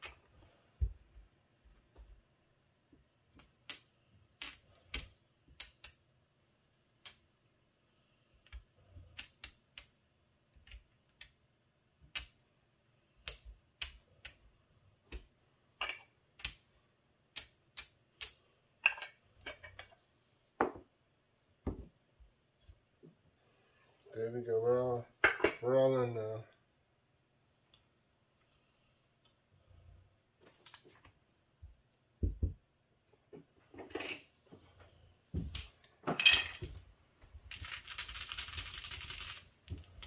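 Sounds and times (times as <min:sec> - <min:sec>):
casino chips clicking: 0:37.5 - 0:40.0.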